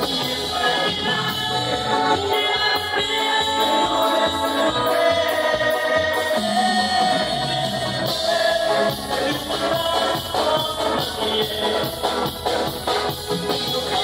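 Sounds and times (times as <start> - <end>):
man singing into microphone: 0.0 - 12.4, 13.3 - 14.0
live band music: 0.0 - 14.0.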